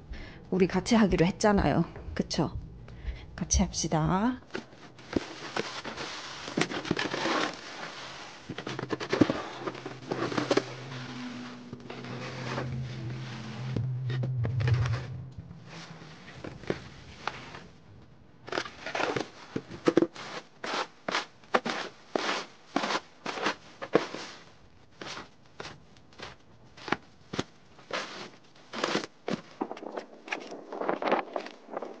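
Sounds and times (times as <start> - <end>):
snow shovels scraping snow on pavement: 5.1 - 11.6, 20.1 - 25.2.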